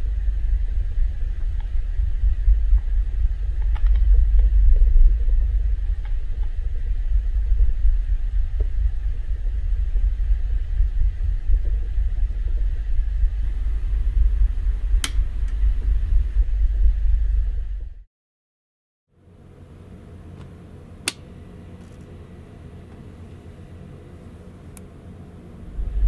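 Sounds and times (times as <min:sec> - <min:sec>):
low rumble of ship engines: 0:00.0 - 0:18.1, 0:19.2 - 0:26.0
light switch click: 0:15.0 - 0:15.2, 0:21.0 - 0:21.2.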